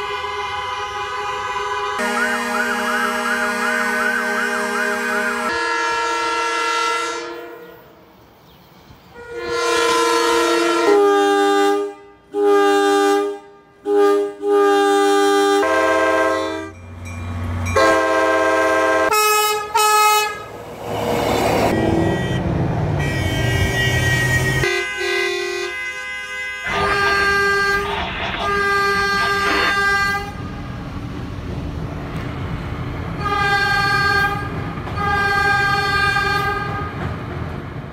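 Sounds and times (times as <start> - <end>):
train horn blasts: 0.0 - 8.0, 9.2 - 16.8, 17.7 - 20.5, 23.0 - 30.6, 33.2 - 37.0
passing train rumble: 13.4 - 24.6, 26.6 - 37.9.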